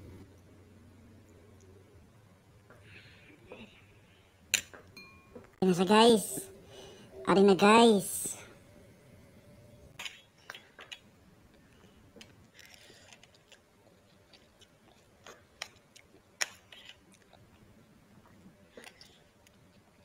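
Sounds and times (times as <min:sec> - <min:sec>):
person eating noodles: 0:09.9 - 0:20.0
chewing: 0:10.0 - 0:20.0.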